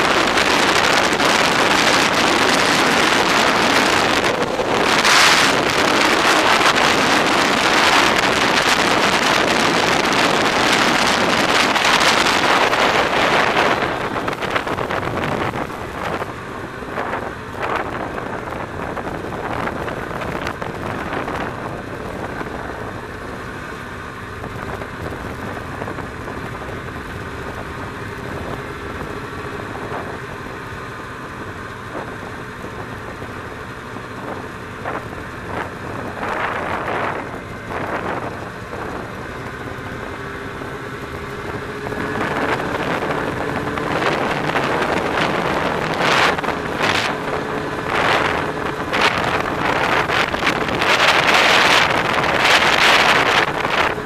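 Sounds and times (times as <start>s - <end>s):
snowmobile engine running: 0.0s - 54.0s
wind rushing over microphone: 0.0s - 54.0s.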